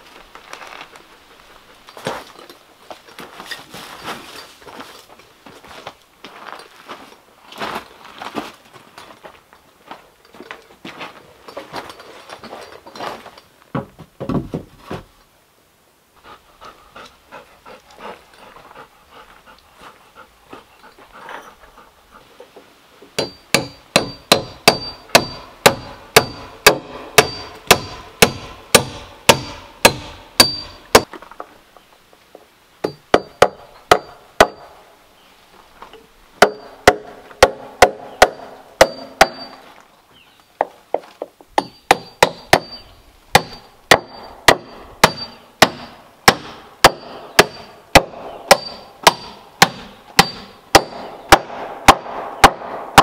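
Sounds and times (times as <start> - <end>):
hammer driving nails into wood: 23.2 - 31.1.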